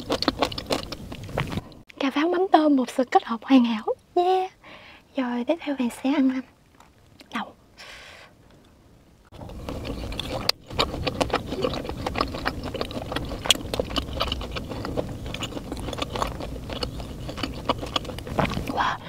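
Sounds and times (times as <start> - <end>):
chewing mouth clicks and smacks: 0.0 - 1.8, 9.4 - 18.8
low rumble: 9.3 - 19.0.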